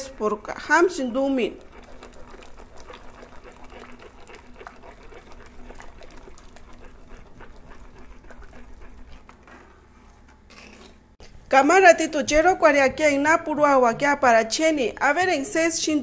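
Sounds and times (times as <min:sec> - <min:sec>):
liquid stirring: 0:00.0 - 0:10.5.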